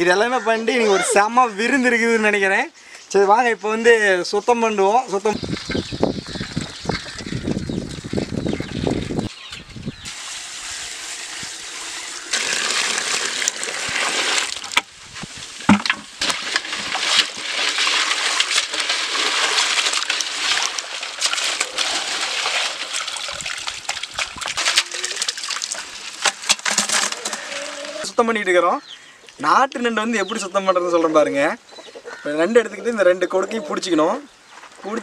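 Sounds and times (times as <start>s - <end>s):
water pouring from a bucket: 10.0s - 28.1s
water splashing and sloshing: 10.1s - 28.0s.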